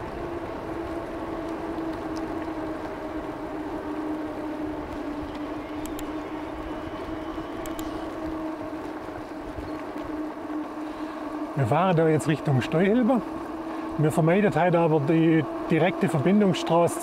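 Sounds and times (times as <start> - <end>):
e-bike motor hum: 0.0 - 17.0
faint ticks: 0.8 - 14.0.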